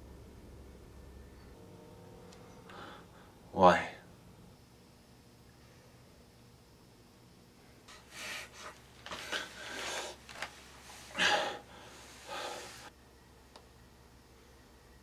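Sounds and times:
man gasping for breath: 11.1s - 12.9s.

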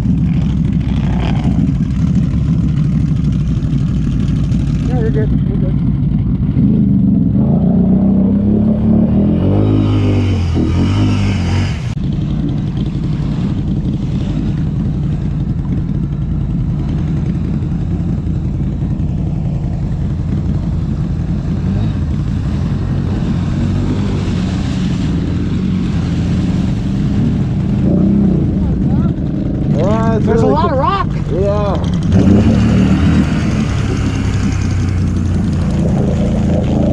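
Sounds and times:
atv engine revving: 0.0s - 36.9s
water rushing and splashing: 19.2s - 36.9s.

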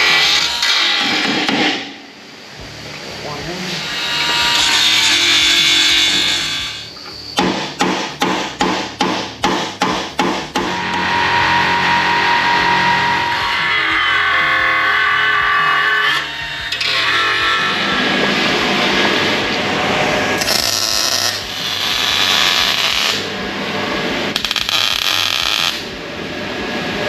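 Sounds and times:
power tool whining: 19.4s - 23.2s
welding crackle: 20.4s - 23.2s, 24.3s - 25.9s.

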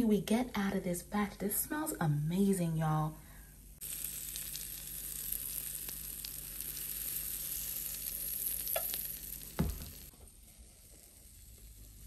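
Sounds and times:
batter sizzling in waffle iron: 3.8s - 12.0s
thump: 9.6s - 10.0s.

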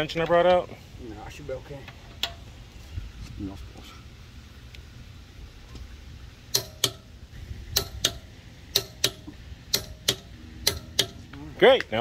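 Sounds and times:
torque wrench clicking: 7.7s - 11.2s.

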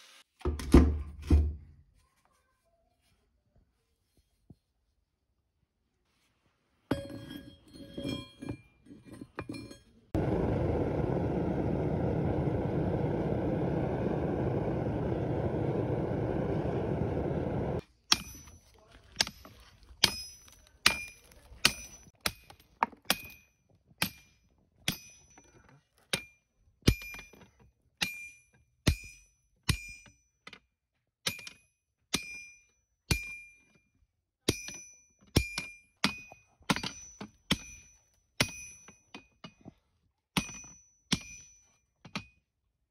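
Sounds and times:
loud rushing forge noise: 10.2s - 17.8s.

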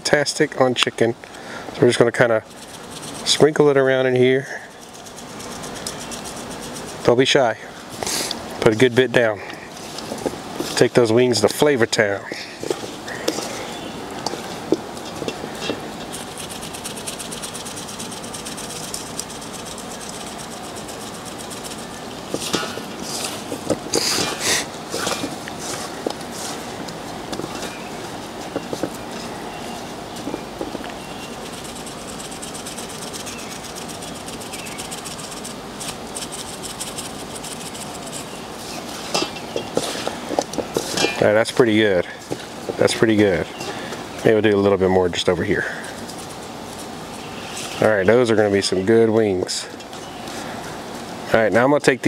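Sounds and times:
steady background noise: 0.0s - 52.0s
seasoning shaker rattling: 2.4s - 7.2s, 14.2s - 26.4s, 30.2s - 38.4s.

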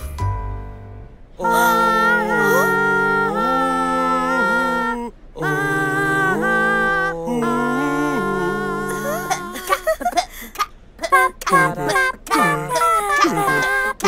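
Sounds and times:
cartoon character singing: 1.4s - 9.8s, 11.0s - 14.0s.

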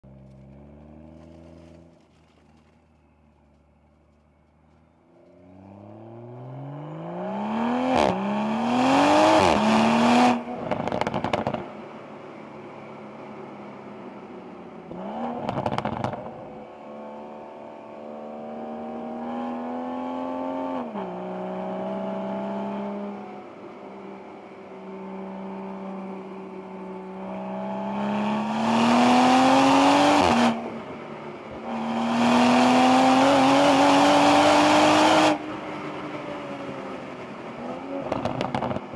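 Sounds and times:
car engine accelerating hard: 5.4s - 11.6s, 25.0s - 38.9s.

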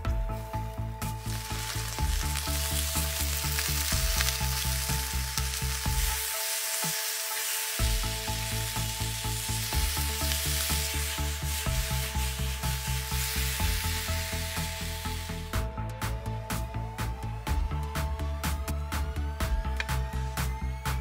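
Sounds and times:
music with bass beat: 0.0s - 21.0s
meat sizzling in oil: 1.0s - 15.6s.

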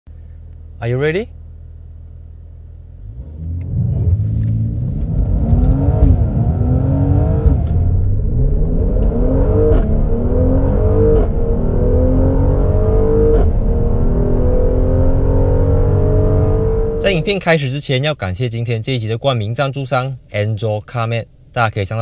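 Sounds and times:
car engine accelerating hard: 3.0s - 17.3s.

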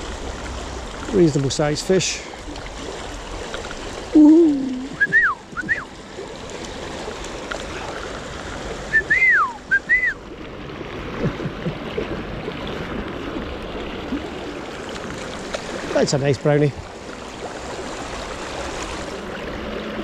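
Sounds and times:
river water rushing: 0.0s - 20.0s
short whistled notes: 5.0s - 5.9s, 8.9s - 10.2s.

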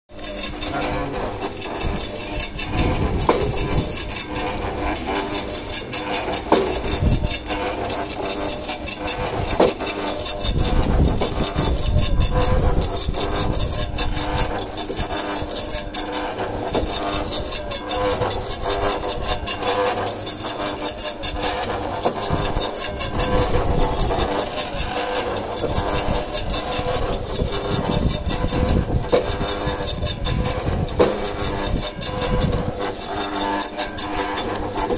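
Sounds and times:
slicer motor hum: 0.1s - 34.9s.

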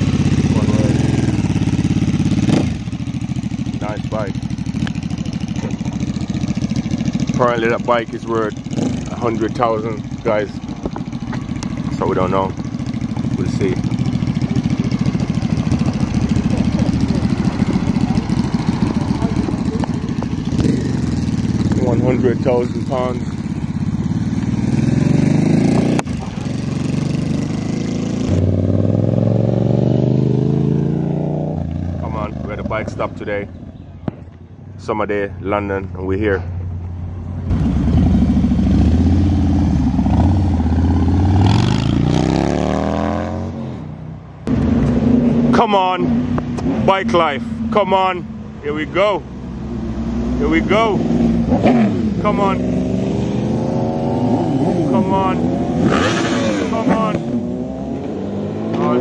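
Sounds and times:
motorcycle engine idling: 0.0s - 28.6s.

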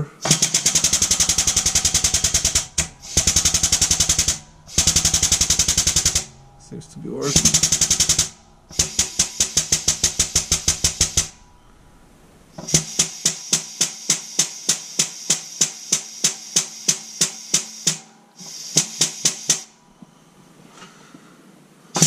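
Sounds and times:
shop press clattering: 0.2s - 6.7s.

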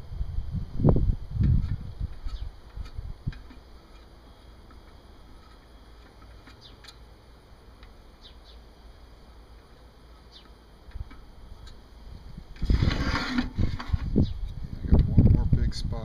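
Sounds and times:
faint bird chirps: 8.2s - 8.7s, 10.1s - 10.6s.

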